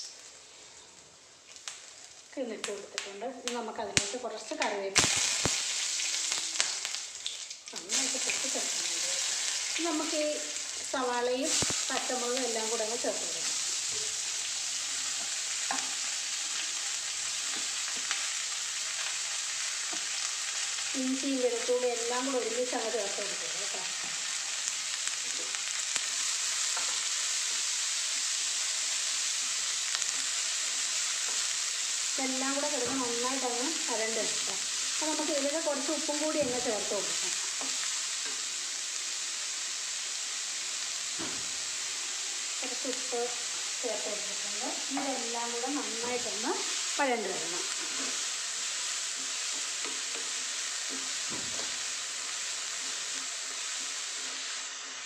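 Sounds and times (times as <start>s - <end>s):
vegetables sizzling in oil: 0.0s - 55.0s.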